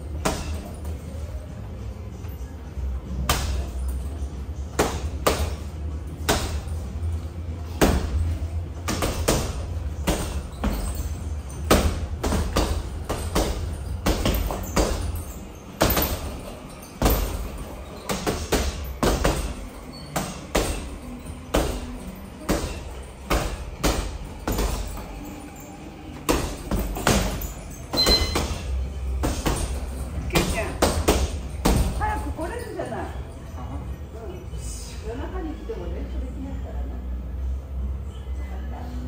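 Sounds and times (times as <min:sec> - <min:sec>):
boxing gloves punching bag: 0:00.1 - 0:01.0, 0:03.2 - 0:04.1, 0:04.7 - 0:07.0, 0:07.6 - 0:25.5, 0:26.1 - 0:32.3.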